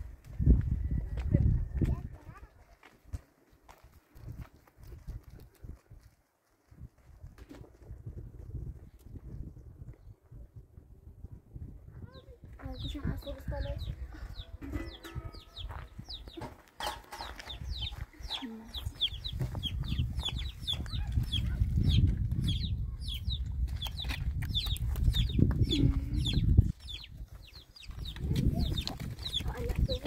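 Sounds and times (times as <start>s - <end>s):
chickens calling: 13.8s - 30.0s.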